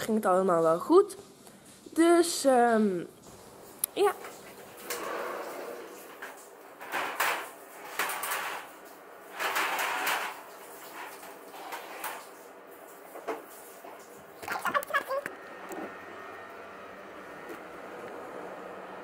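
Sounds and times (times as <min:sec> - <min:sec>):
sliding door rolling open: 0:03.3 - 0:13.3, 0:15.3 - 0:19.0
shutters scraping open: 0:04.2 - 0:12.3.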